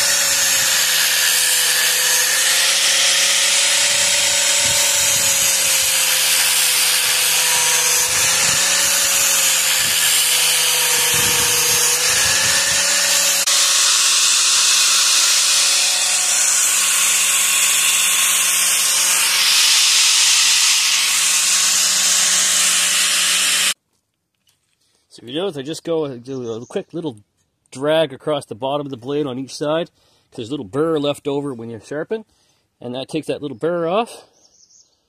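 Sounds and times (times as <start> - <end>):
angle grinder grinding steel: 0.0 - 23.8.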